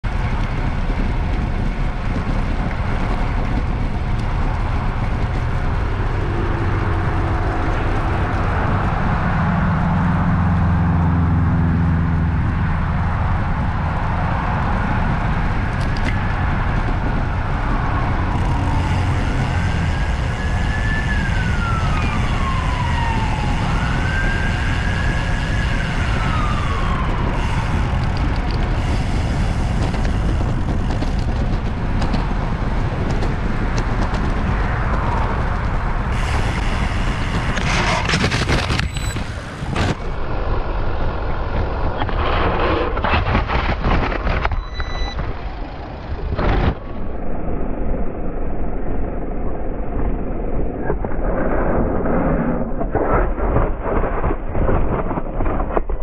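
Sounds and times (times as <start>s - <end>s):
vehicle engine humming: 0.0s - 47.8s
traffic and road noise: 0.0s - 56.0s
siren wailing: 18.0s - 28.6s.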